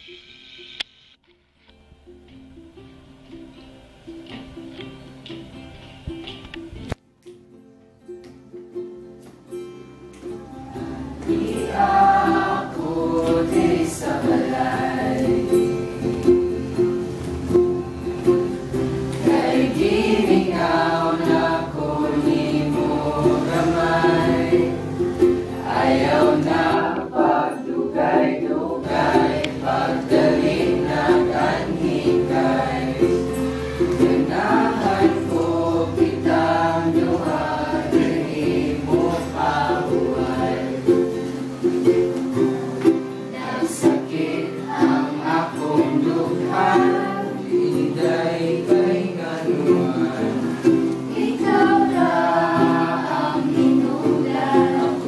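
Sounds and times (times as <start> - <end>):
acoustic guitar: 0.0 - 55.0
strummed ukulele: 1.2 - 55.0
group singing together: 10.2 - 55.0.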